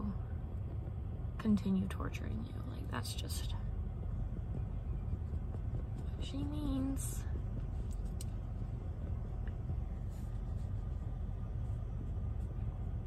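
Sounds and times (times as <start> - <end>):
car cabin rumble: 0.0 - 13.0.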